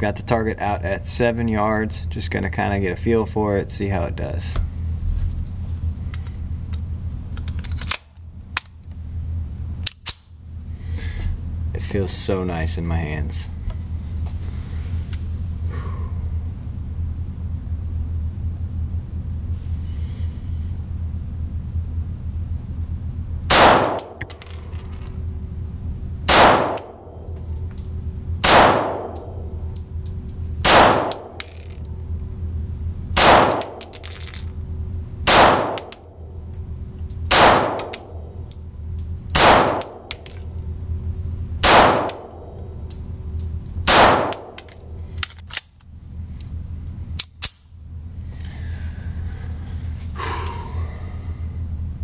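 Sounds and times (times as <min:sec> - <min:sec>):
low steady hum: 0:00.0 - 0:52.0
pistol handling clicks: 0:09.8 - 0:10.3, 0:23.6 - 0:24.6, 0:27.6 - 0:31.8, 0:33.2 - 0:34.4, 0:35.3 - 0:40.4, 0:41.6 - 0:45.9, 0:47.2 - 0:47.7
pistol shots: 0:23.5 - 0:24.3, 0:26.3 - 0:27.1, 0:28.4 - 0:29.3, 0:30.6 - 0:31.7, 0:33.2 - 0:34.0, 0:35.3 - 0:36.0, 0:37.3 - 0:38.1, 0:39.3 - 0:40.2, 0:41.6 - 0:42.4, 0:43.8 - 0:44.7.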